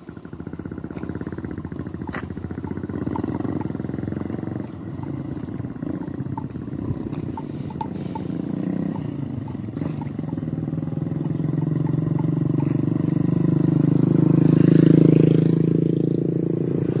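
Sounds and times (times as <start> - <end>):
small motorcycle engine approaching: 0.0 - 17.0.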